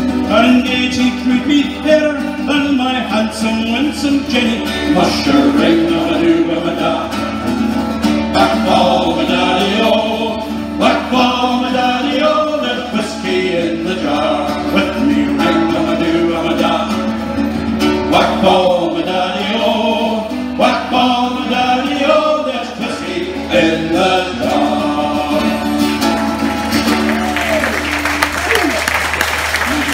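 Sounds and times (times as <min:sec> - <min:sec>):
strummed acoustic guitars: 0:00.0 - 0:28.8
men singing folk chorus: 0:02.6 - 0:07.5, 0:08.3 - 0:17.3, 0:18.0 - 0:26.8.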